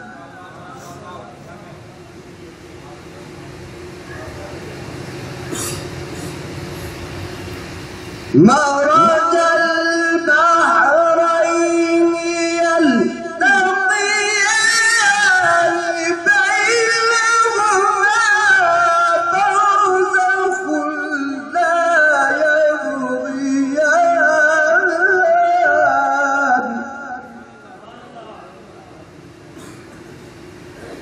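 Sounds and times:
man reciting in melodic chant: 8.3 - 28.6.

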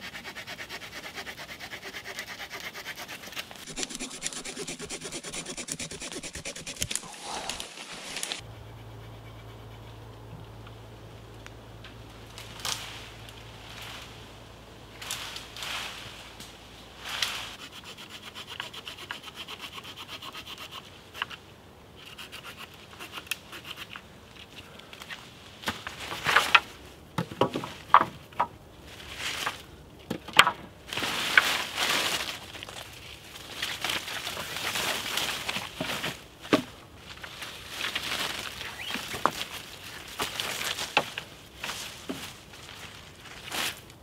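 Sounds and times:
rhythmic rasping: 1.4 - 9.9
leafy branches rustling: 3.2 - 8.5, 10.5 - 17.6, 24.8 - 27.0, 28.8 - 29.8, 30.8 - 44.0
twigs snapping: 5.5 - 8.4.

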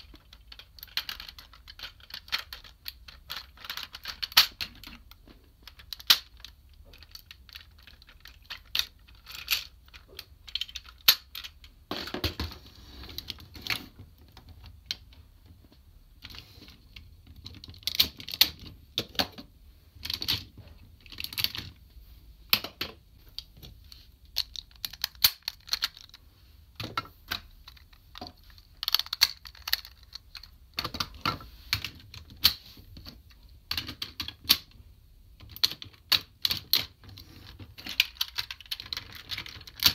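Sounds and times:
plastic toy parts clicking: 0.0 - 12.2, 17.2 - 21.7, 24.3 - 26.2, 26.8 - 34.8, 35.4 - 39.9.

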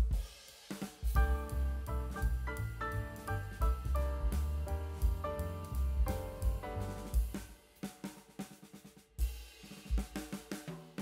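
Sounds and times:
background music with steady beat: 0.0 - 8.6
deep bass note: 1.2 - 7.3.

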